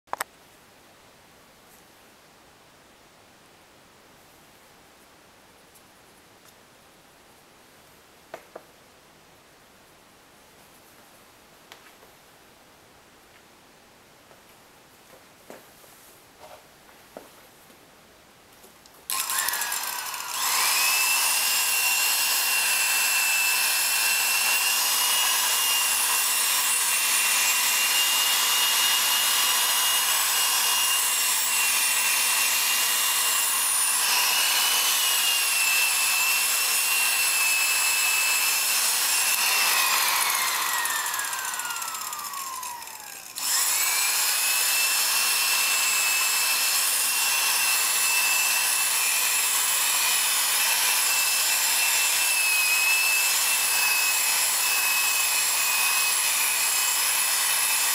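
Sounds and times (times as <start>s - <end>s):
electric drill motor whining: 19.1s - 57.9s.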